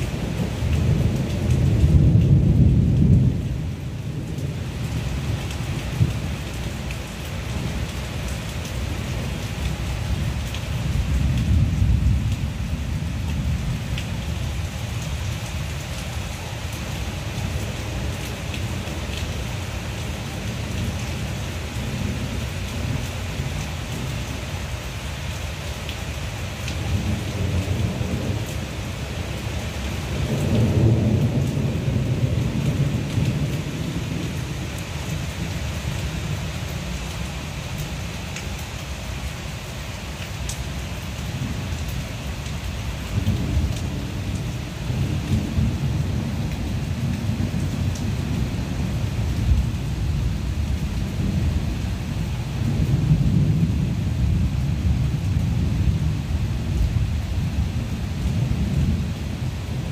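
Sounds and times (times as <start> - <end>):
low rolls of thunder: 0.0 - 6.4, 10.9 - 14.4, 26.8 - 29.5, 30.1 - 35.4, 43.1 - 59.9
heavy rain on trees and grass: 0.0 - 59.9.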